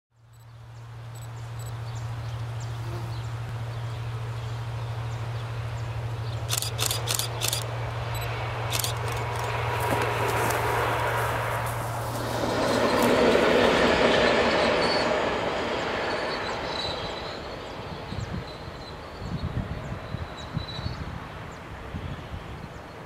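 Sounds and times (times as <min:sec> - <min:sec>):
distant diesel locomotive drone: 0:00.1 - 0:23.0
faint birds or insects chirping: 0:00.2 - 0:13.4
sharp clicks: 0:06.5 - 0:09.6.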